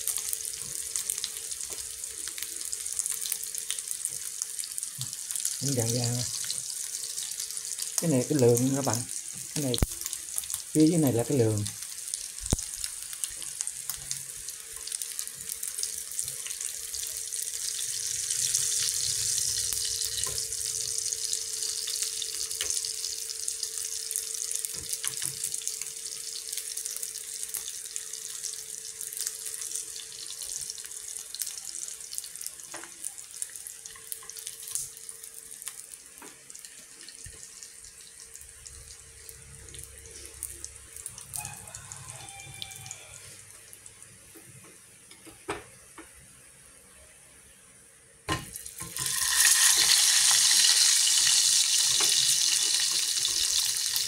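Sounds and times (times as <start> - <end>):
fish sizzling in hot oil: 0.0 - 43.9, 48.3 - 54.0.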